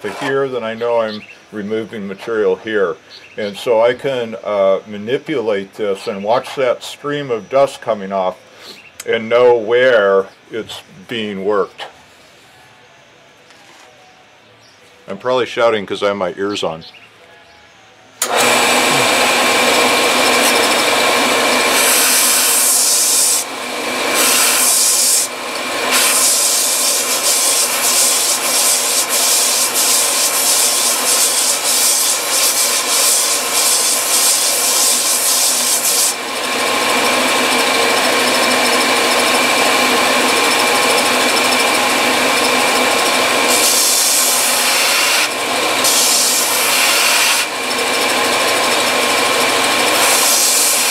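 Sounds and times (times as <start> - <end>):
rubber pad grinding on sanding belt: 0.0 - 1.0, 18.2 - 50.9
belt sander running: 0.0 - 1.2, 18.2 - 50.9.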